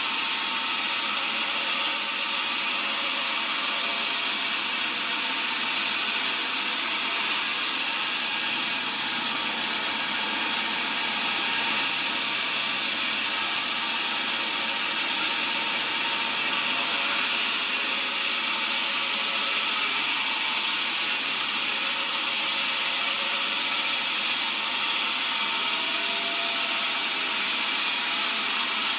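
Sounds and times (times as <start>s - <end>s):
band saw cutting wood: 0.0s - 28.9s.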